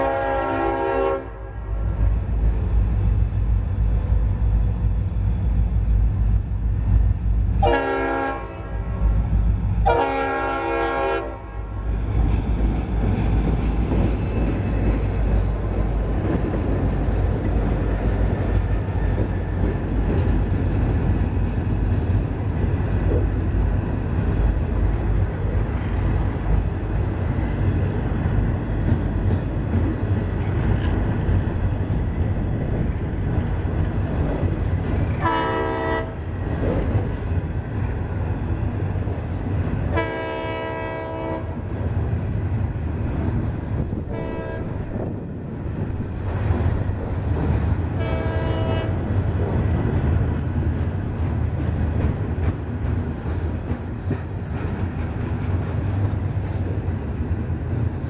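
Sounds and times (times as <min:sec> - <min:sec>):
locomotive air horn blasts: 0:00.0 - 0:01.6, 0:07.6 - 0:09.1, 0:09.8 - 0:11.7, 0:35.2 - 0:36.2, 0:39.9 - 0:41.6, 0:44.1 - 0:44.8, 0:48.0 - 0:49.0
train wheels rumbling on rails: 0:00.0 - 0:58.0.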